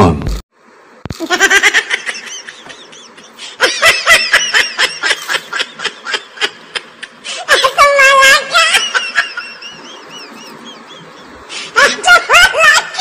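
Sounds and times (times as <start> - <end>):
child giggling: 1.2 - 9.9, 11.7 - 13.0.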